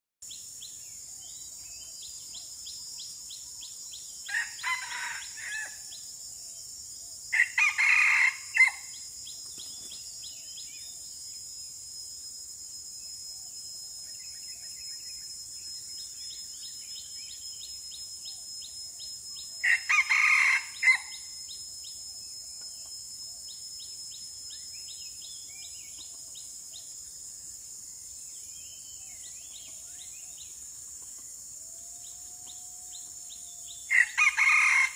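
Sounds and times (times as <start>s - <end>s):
high insect drone: 0.2s - 34.9s
rooster crowing: 4.3s - 5.9s, 7.3s - 9.0s, 19.6s - 21.2s, 33.9s - 34.9s.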